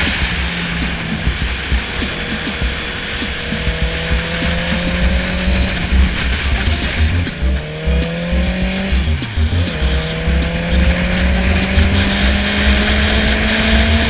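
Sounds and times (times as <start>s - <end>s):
motorcycle engine at speed: 0.0s - 14.0s.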